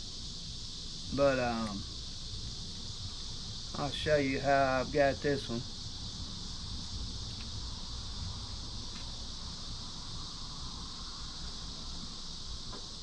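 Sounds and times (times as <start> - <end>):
crickets chirping: 0.0 - 13.0.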